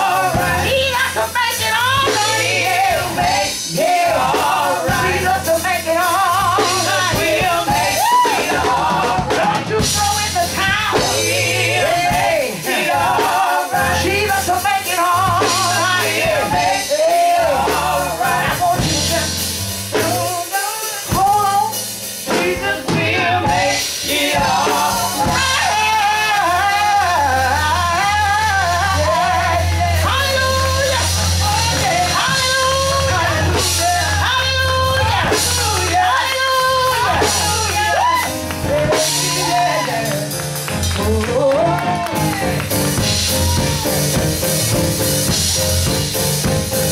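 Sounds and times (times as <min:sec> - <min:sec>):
woman singing with vibrato: 0:00.0 - 0:19.4, 0:22.4 - 0:40.4
drum kit: 0:00.0 - 0:46.9.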